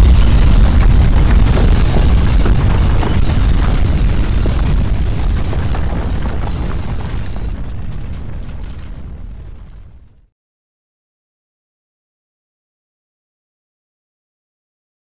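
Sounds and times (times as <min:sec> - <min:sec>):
deep earthquake rumble: 0:00.0 - 0:10.3.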